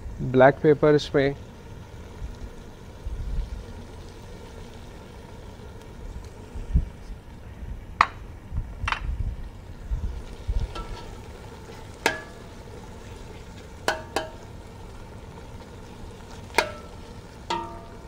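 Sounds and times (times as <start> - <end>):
ladle stirring thick gravy: 10.1 - 18.0
ladle clinking against pot: 12.0 - 12.4, 16.6 - 16.9, 17.5 - 18.0.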